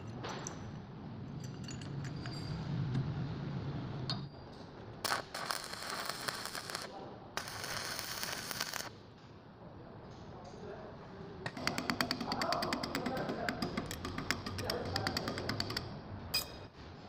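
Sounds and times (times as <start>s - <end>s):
metal clinks: 0.0s - 2.9s
arc welding crackling: 5.0s - 9.0s.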